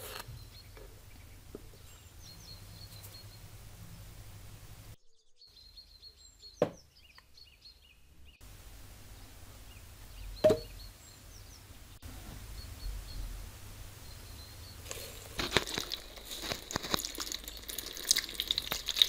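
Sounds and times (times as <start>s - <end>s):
faint bird chirps: 0.1s - 4.1s, 5.0s - 8.4s, 9.1s - 15.1s
containers knocking on wooden table: 10.4s - 10.7s.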